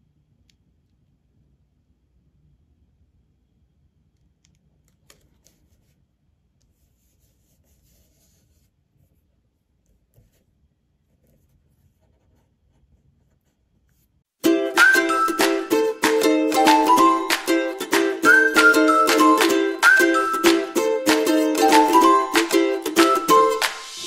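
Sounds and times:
hands rubbing paper: 5.2s - 10.5s.

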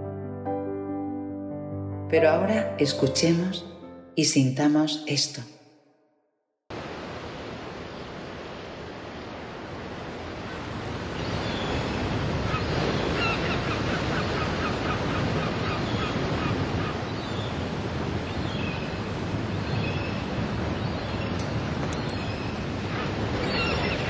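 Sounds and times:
sea waves breaking on shore: 6.7s - 24.0s
gulls calling: 11.2s - 17.7s, 21.0s - 24.0s.

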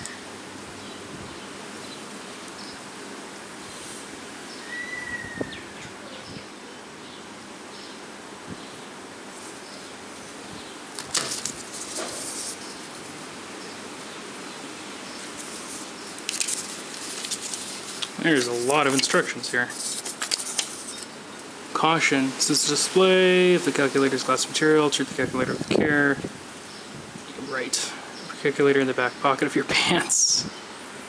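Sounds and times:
outdoor background hiss: 0.0s - 31.0s
paper rustling: 10.9s - 13.1s, 15.2s - 21.1s.

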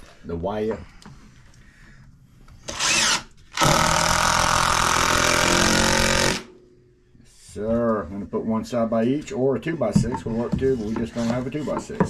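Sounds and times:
cordless drill driving a screw: 2.7s - 6.5s.

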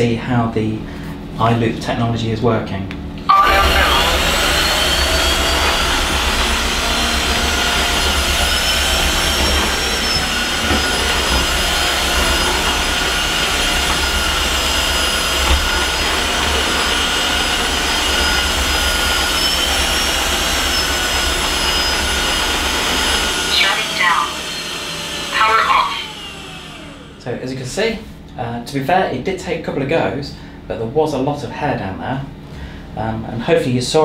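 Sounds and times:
floor washer motor whine: 3.3s - 28.1s.

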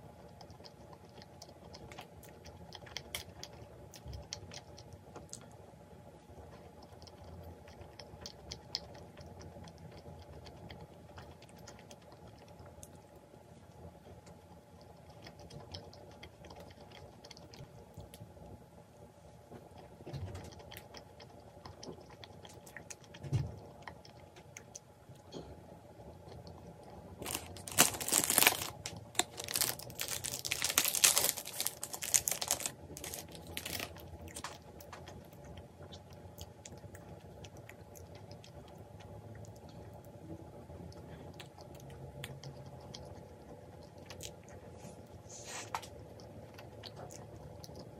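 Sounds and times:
chewing crunchy pastry: 0.0s - 18.8s, 19.4s - 47.9s
plastic wrapper crinkling and tearing: 27.2s - 34.6s.

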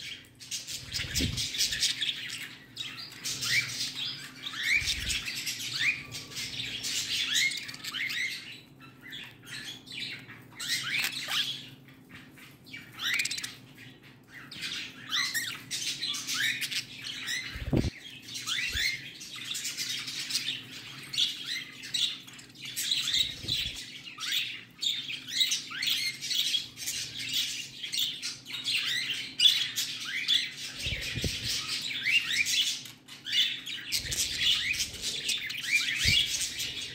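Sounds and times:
budgerigars chattering: 28.8s - 36.9s.

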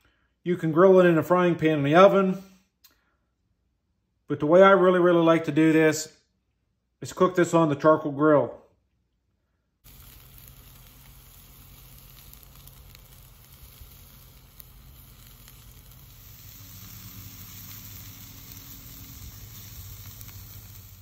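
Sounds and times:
steak sizzling on a grill: 9.9s - 21.0s.

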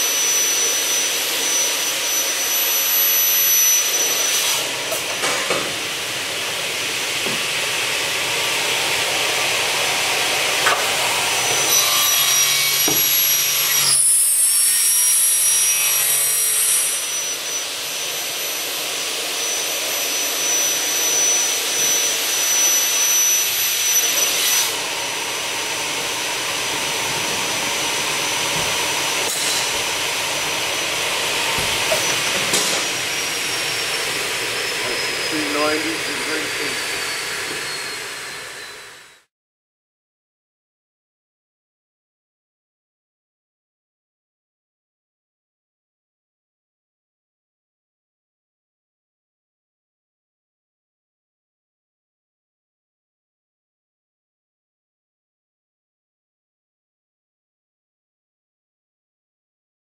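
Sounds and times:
saw blades whining: 0.0s - 6.0s, 7.9s - 39.3s
saw cutting through metal: 0.0s - 39.3s
loud hiss: 26.8s - 38.1s.

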